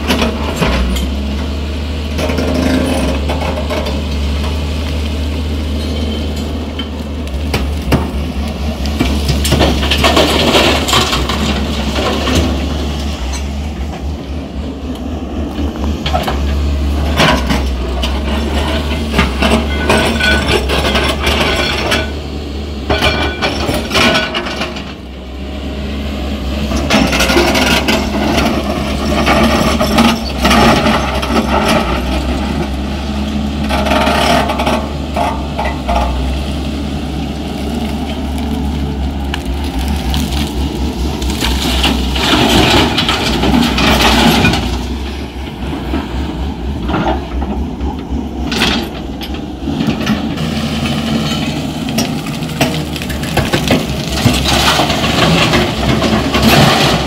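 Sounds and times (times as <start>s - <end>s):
excavator diesel engine running: 0.0s - 57.0s
bucket digging and scraping earth: 37.4s - 57.0s
stones crunching and clinking: 37.8s - 44.7s.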